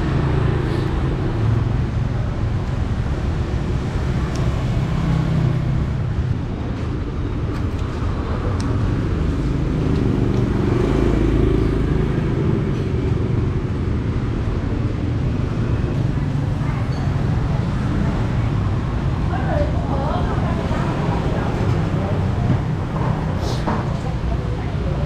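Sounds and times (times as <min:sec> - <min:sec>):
vehicle engines passing: 0:00.0 - 0:25.0.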